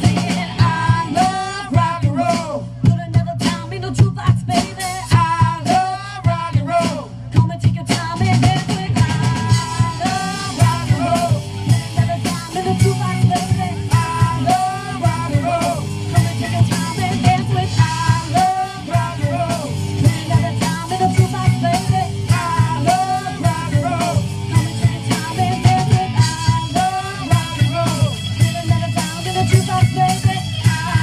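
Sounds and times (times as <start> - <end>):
electric guitar: 0.0 - 2.3, 8.2 - 31.0
drum kit: 0.0 - 31.0
electric bass: 0.0 - 31.0
woman singing: 0.0 - 31.0
keyboard: 8.1 - 31.0.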